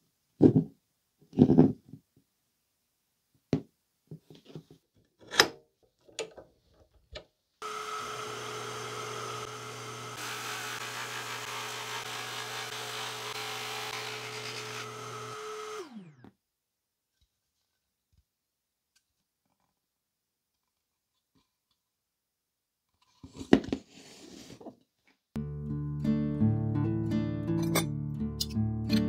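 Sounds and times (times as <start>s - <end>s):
hole saw cutting wood: 7.6s - 16.2s
drill press motor humming: 7.6s - 16.3s.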